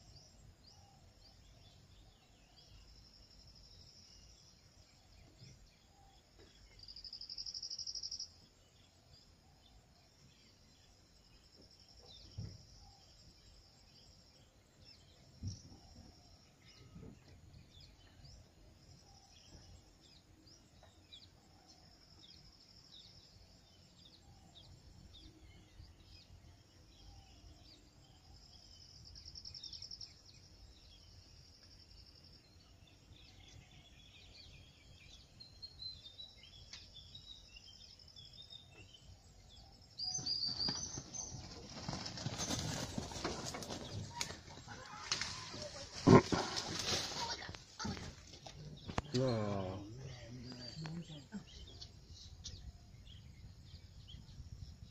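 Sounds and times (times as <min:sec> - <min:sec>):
insects trilling: 0:36.2 - 0:53.0.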